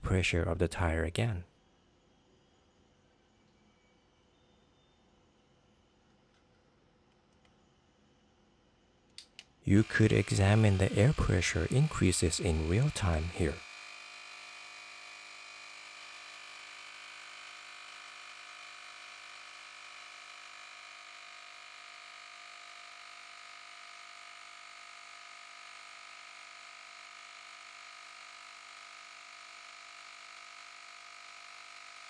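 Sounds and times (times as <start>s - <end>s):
tire inflator humming: 9.2s - 32.0s.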